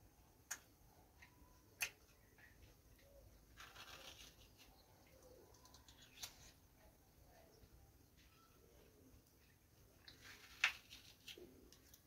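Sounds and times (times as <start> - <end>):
scratchy rustle: 3.6 - 4.8, 10.1 - 12.0.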